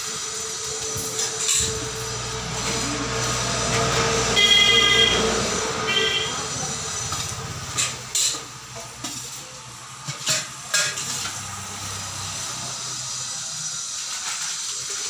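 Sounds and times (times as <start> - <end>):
steel utensils clinking: 0.4 - 5.2, 6.8 - 12.1
steady hiss: 5.1 - 15.0.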